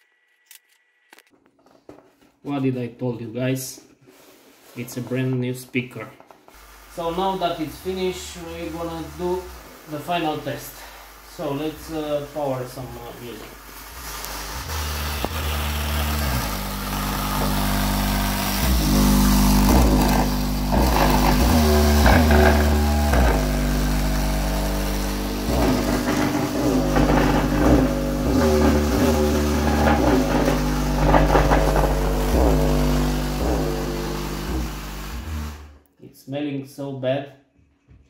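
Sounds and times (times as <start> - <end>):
bass-heavy music through subwoofer: 14.0 - 35.7.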